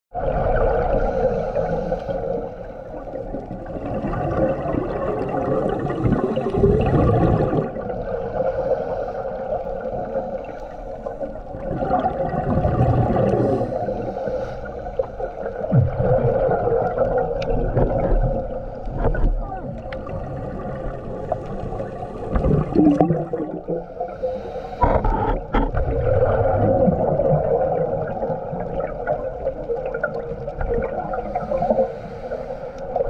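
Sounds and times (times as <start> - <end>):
diver inhaling through regulator: 0.9 - 3.0, 8.0 - 11.3, 13.1 - 15.6, 23.6 - 25.6, 31.1 - 33.0
bubbling exhalations underwater: 3.3 - 8.2, 11.5 - 13.8, 15.6 - 24.0, 24.8 - 31.6.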